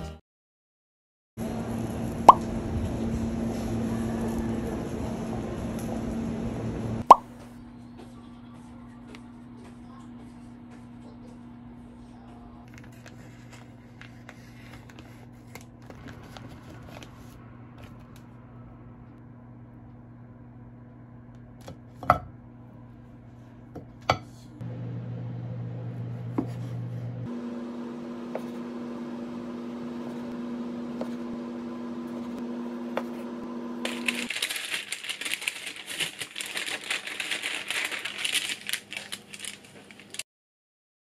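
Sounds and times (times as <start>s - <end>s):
steady low hum: 1.4s - 34.2s
parchment paper crackling: 12.7s - 18.3s, 33.8s - 40.2s.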